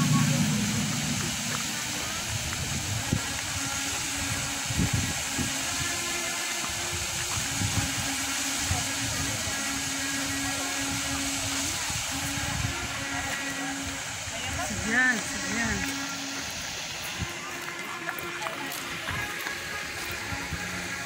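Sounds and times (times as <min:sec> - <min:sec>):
wind buffeting microphone: 0:00.0 - 0:14.8
outdoor hiss: 0:00.0 - 0:21.0.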